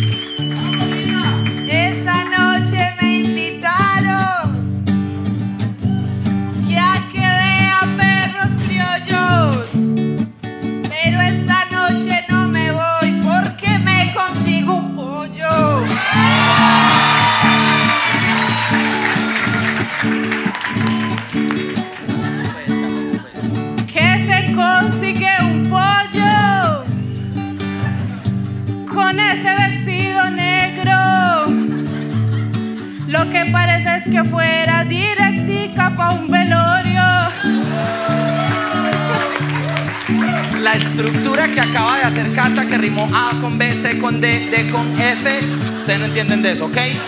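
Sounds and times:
acoustic guitar strumming: 0.0s - 47.0s
woman singing: 1.2s - 4.6s, 6.6s - 9.8s, 10.8s - 16.0s, 22.2s - 27.0s, 28.9s - 31.6s, 33.0s - 39.2s.

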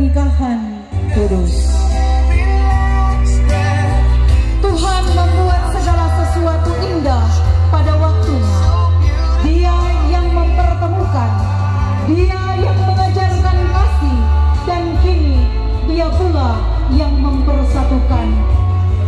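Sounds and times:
heavy bass line: 0.0s - 19.0s
person singing: 0.9s - 7.2s.

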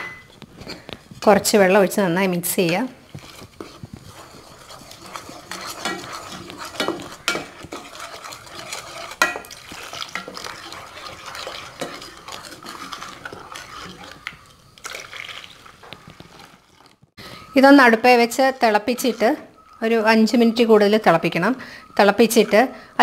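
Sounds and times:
spoon scraping and clinking in pot: 2.5s - 16.6s, 18.2s - 19.8s, 22.0s - 22.8s.

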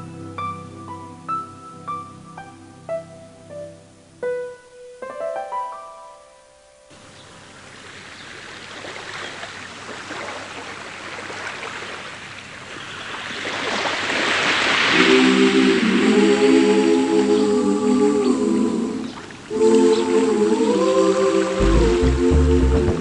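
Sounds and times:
piano notes: 0.0s - 7.0s
ocean surf rushing: 13.0s - 21.6s
sustained choral tone: 14.9s - 23.0s.

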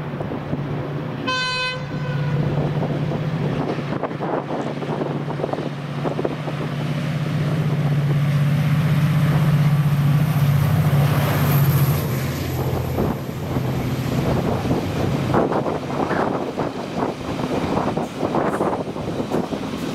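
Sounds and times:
diesel locomotive engine running: 0.0s - 19.9s
wind on microphone: 2.4s - 7.0s, 12.5s - 19.9s.

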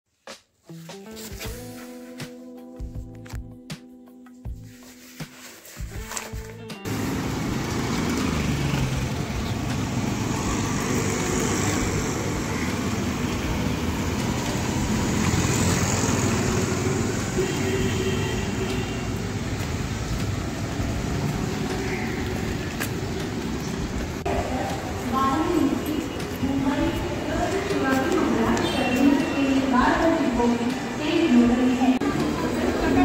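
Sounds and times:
motor scooters passing: 6.8s - 33.0s
street traffic on wet road: 6.8s - 33.0s.

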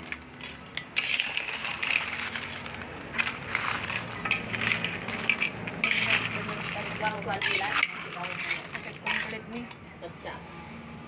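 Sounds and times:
shells clattering in metal wok: 0.0s - 9.8s.

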